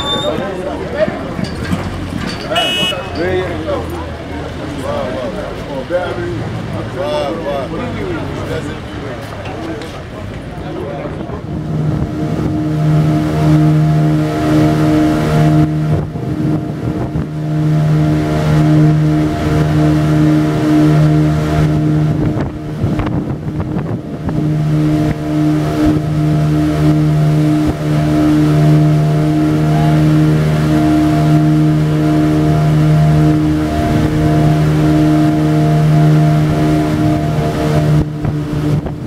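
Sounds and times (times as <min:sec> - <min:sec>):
motorboat engine running: 0:00.0 - 0:39.0.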